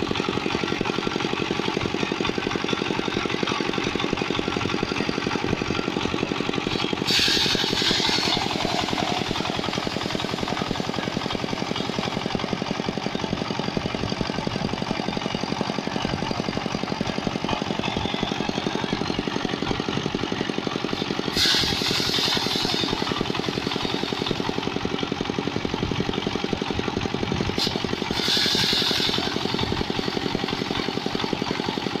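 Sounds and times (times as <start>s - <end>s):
small diesel engine running: 0.0s - 32.0s
threshing drum hissing rush: 6.0s - 12.5s, 20.9s - 25.4s, 27.3s - 31.9s.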